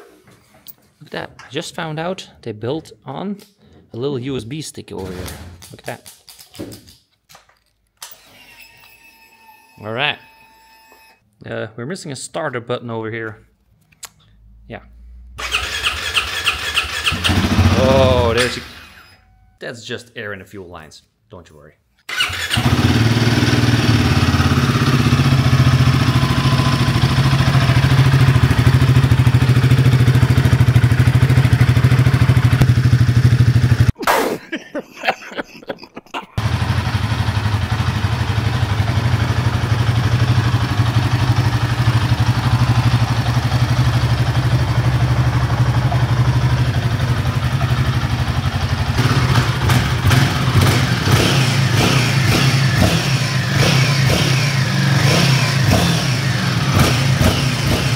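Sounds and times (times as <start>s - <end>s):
motorcycle engine idling: 22.7s - 33.9s, 36.4s - 57.9s.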